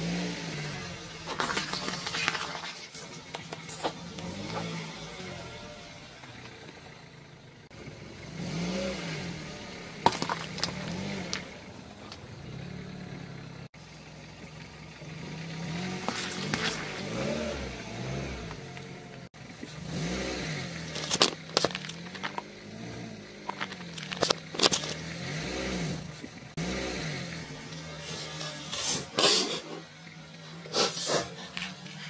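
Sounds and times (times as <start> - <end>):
car engine revving: 0.0 - 2.7, 3.3 - 32.0
tyre crushing food items: 1.2 - 4.8, 10.0 - 12.2, 15.8 - 17.7, 20.8 - 26.4
plastic cup bursting: 1.3 - 3.9, 10.0 - 11.5, 20.9 - 22.5.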